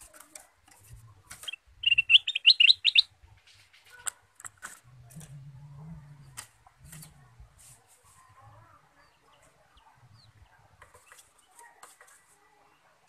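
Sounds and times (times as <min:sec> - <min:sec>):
short sharp bird calls: 0:01.4 - 0:03.1
bird singing whistled notes: 0:01.5 - 0:03.1.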